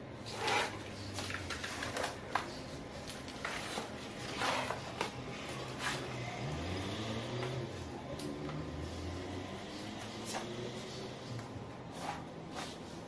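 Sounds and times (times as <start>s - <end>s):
cardboard box rustling and scraping: 0.2s - 6.2s.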